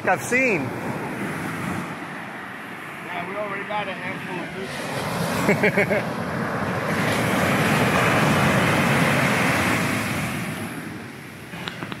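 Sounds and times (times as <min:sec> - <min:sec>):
wave crashing on beach: 0:03.1 - 0:12.0.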